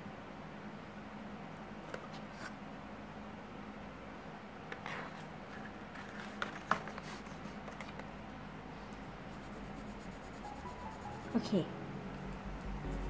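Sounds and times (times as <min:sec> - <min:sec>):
pencil scribbling on paper: 0:09.3 - 0:11.4.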